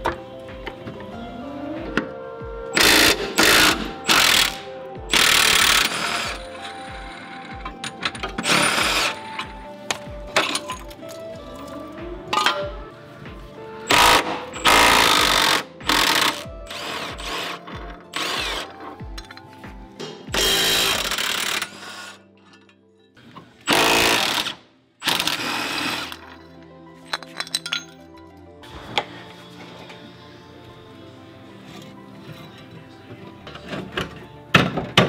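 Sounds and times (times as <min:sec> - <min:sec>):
background music with steady beat: 0:00.0 - 0:35.0
impact wrench hammering: 0:02.8 - 0:11.0, 0:13.9 - 0:19.4, 0:20.0 - 0:22.2, 0:23.7 - 0:26.2.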